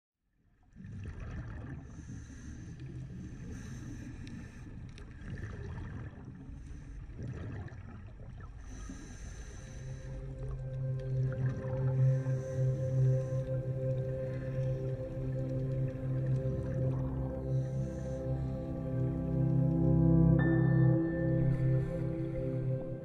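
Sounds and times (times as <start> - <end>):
underwater low rumble: 0.3 - 23.0
music: 9.6 - 23.0.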